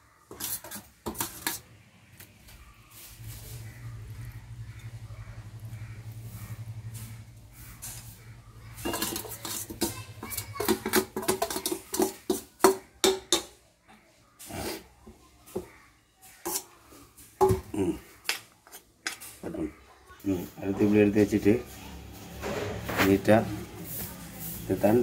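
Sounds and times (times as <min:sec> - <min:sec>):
steel spoon clinking on bowl: 0:08.8 - 0:12.4.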